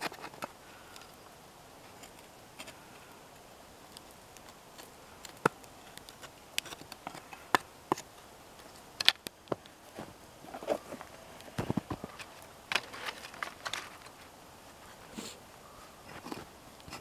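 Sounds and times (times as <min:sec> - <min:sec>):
wood splitting cracks: 0:03.9 - 0:09.7.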